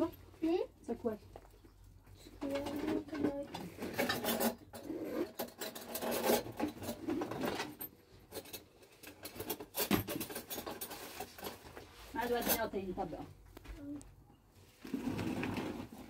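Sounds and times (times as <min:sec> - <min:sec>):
rustling and scraping in crate: 0:02.4 - 0:12.8, 0:14.6 - 0:16.0.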